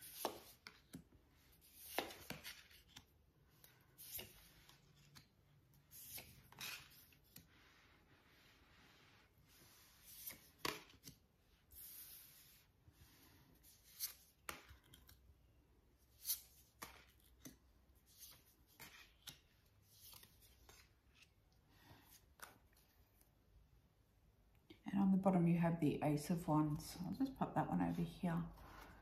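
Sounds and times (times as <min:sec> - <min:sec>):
cards tapping and sliding on table: 0:10.0 - 0:11.2.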